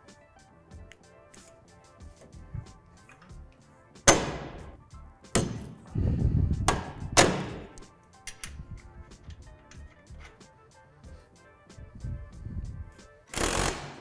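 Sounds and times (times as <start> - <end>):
light background music: 0.0 - 14.0.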